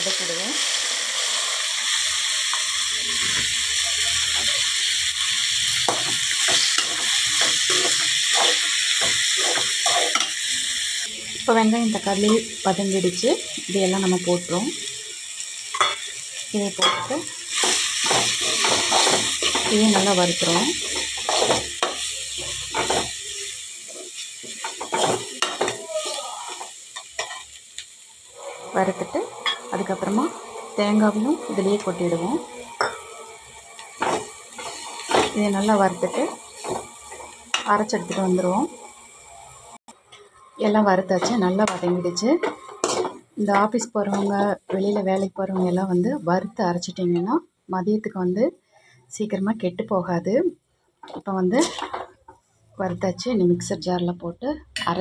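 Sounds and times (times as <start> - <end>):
vegetables sizzling in oil: 0.0 - 48.5, 49.1 - 55.0
spoon scraping a pan: 5.8 - 10.5, 16.8 - 27.5, 28.4 - 38.3, 41.1 - 45.8.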